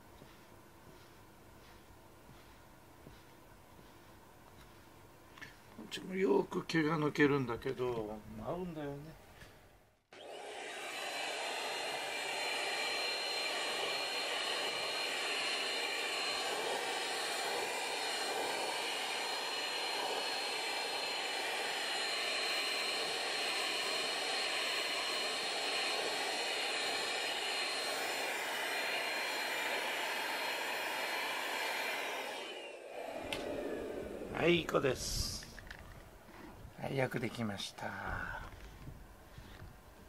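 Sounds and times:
handheld vacuum cleaner whining: 10.1s - 35.8s.

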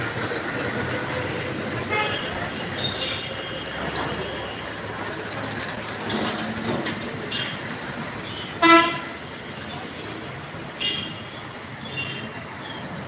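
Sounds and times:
street traffic: 0.0s - 13.0s
car horn honk: 1.9s - 2.3s, 8.3s - 9.1s.

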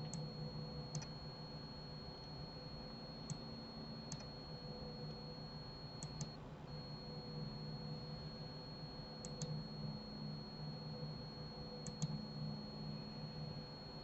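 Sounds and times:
computer mouse clicking: 0.0s - 0.2s, 0.9s - 1.2s, 3.2s - 3.4s, 4.1s - 4.3s, 6.0s - 6.4s, 9.2s - 9.6s, 11.8s - 12.2s
faint high whine: 0.0s - 14.0s
low electrical hum: 0.0s - 14.0s.

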